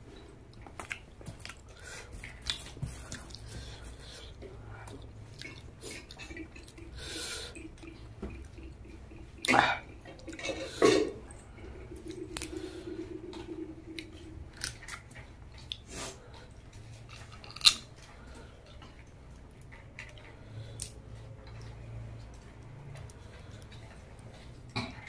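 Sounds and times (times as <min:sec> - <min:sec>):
chewing: 0:00.1 - 0:25.0
crab shell cracking: 0:17.3 - 0:17.9.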